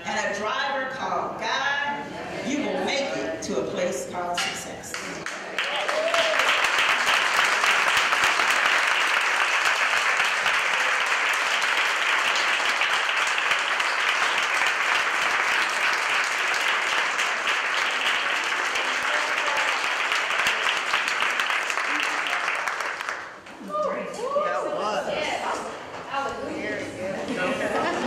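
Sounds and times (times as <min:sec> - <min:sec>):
audience applauding: 0:05.2 - 0:23.4.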